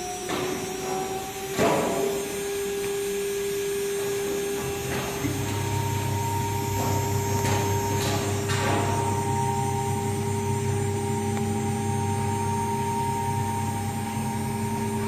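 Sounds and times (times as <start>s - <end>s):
low hum: 5.3s - 15.0s
router spindle whining: 5.3s - 15.0s.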